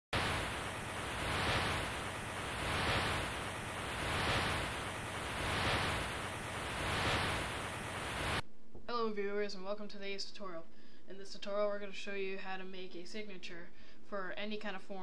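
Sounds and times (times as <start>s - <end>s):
synthesized rushing noise: 0.0s - 8.4s.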